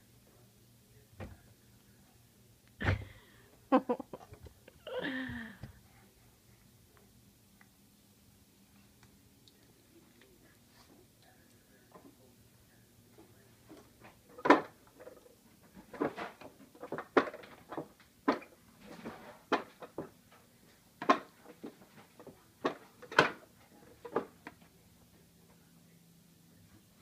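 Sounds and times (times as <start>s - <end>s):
wooden toy knocking and clattering: 15.9s - 18.5s.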